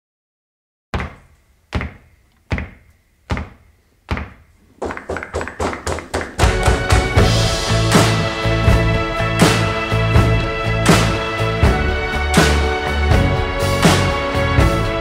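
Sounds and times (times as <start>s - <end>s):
soundtrack music: 5.8s - 15.0s.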